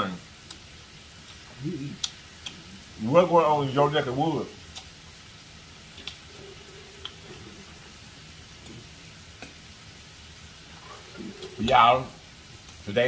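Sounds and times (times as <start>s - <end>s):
broth simmering: 0.0s - 13.0s
soft eating clicks: 2.0s - 2.7s, 4.7s - 4.9s, 5.9s - 6.2s, 7.0s - 7.4s, 8.6s - 9.6s, 11.2s - 11.6s.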